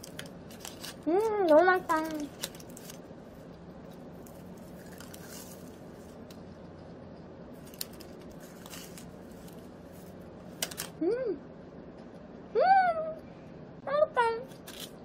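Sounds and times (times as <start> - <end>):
low room hum: 0.0 - 15.0
croissant being chewed: 2.2 - 6.9.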